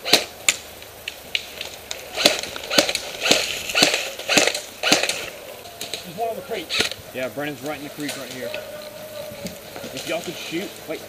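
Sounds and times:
airsoft gun shots: 2.1s - 5.3s.

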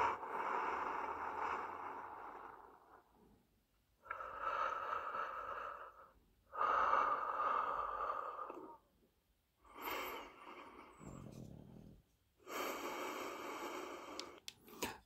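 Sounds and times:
slow breaths through small speaker: 4.0s - 8.9s, 12.4s - 15.0s.

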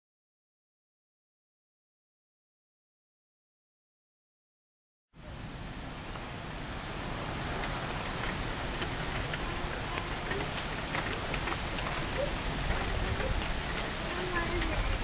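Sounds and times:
heavy rain falling: 5.2s - 15.0s
drops ticking on surfaces: 7.6s - 15.0s.

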